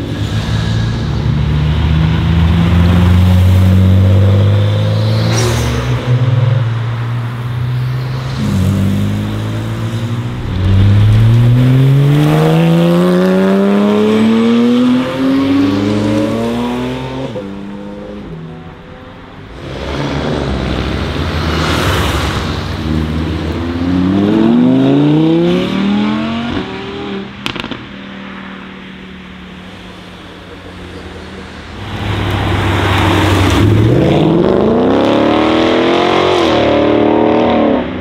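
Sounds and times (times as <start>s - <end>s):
sports car approaching: 6.4s - 18.8s
sports car accelerating past: 7.6s - 17.9s.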